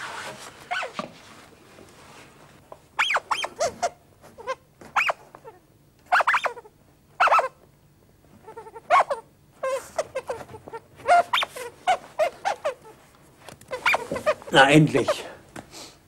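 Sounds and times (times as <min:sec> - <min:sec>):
squeaky puppet voices: 0:03.0 - 0:07.5, 0:08.4 - 0:13.0, 0:13.7 - 0:15.3.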